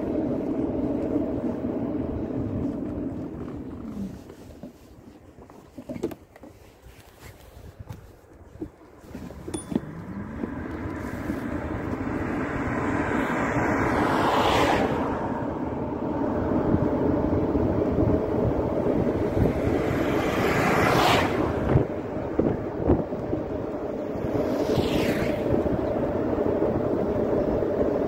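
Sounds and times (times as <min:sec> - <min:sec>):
vehicle moving along road: 0:00.0 - 0:28.0
wind buffeting microphone: 0:07.3 - 0:28.0.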